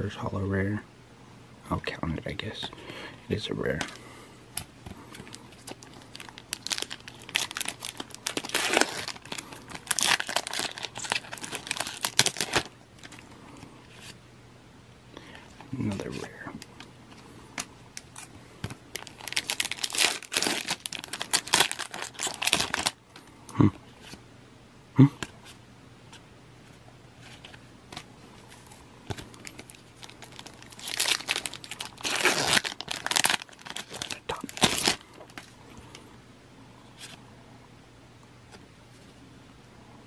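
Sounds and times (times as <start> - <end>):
foil wrappers tearing and crinkling: 5.2 - 13.2, 18.9 - 23.0, 29.1 - 35.4.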